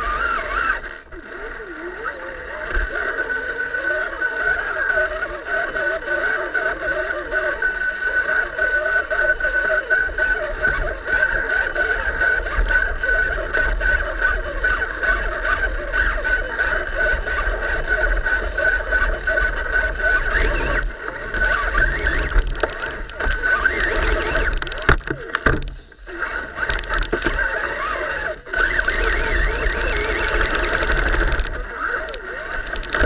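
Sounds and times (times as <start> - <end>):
electric motor and gearbox whine: 0.0 - 33.0
leaves and twigs crackling: 20.2 - 25.9, 26.6 - 27.4, 28.6 - 33.0.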